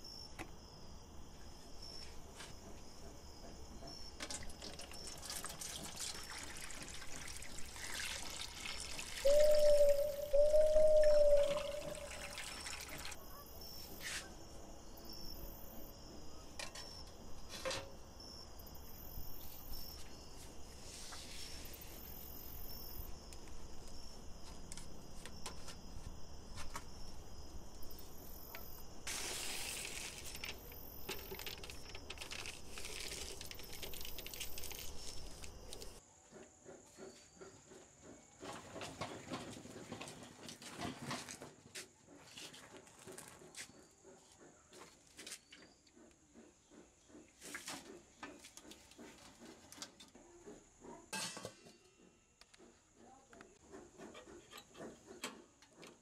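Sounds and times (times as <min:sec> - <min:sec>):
crickets chirping: 0:00.0 - 0:38.4
rustling noise: 0:19.5 - 0:22.2, 0:29.0 - 0:36.0.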